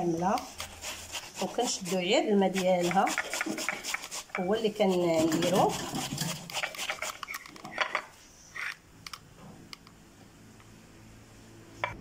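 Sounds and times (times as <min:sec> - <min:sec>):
onion grating on metal grater: 0:00.3 - 0:07.5.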